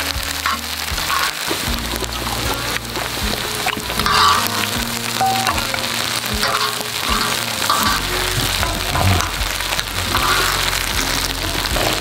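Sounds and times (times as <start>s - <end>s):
rice sizzling on a griddle: 0.0s - 12.0s
metal spoon scraping griddle: 5.6s - 12.0s.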